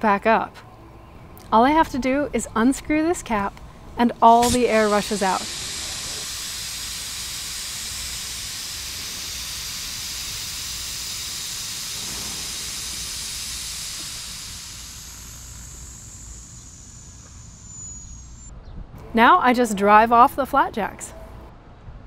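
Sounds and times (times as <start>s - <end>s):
air hissing out of valve: 3.2s - 18.5s
thin high whistle: 4.4s - 18.5s.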